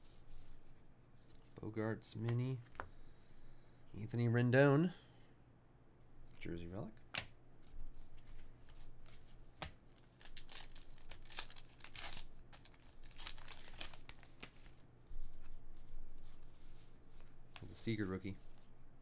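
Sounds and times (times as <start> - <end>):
cards being flipped: 8.1 - 14.8.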